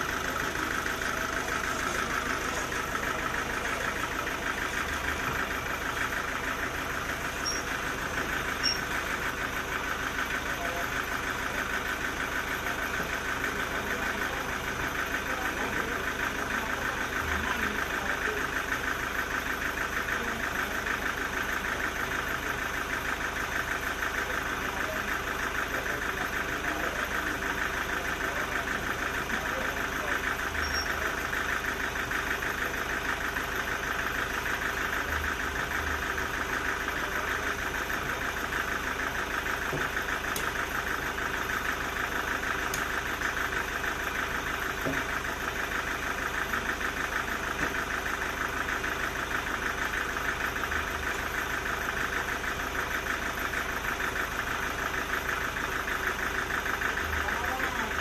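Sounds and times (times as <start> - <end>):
sawmill machinery droning: 0.0 - 58.0.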